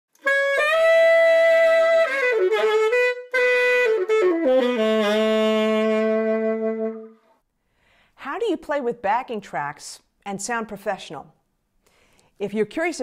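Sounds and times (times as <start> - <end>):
saxophone jingle: 0.2 - 7.2.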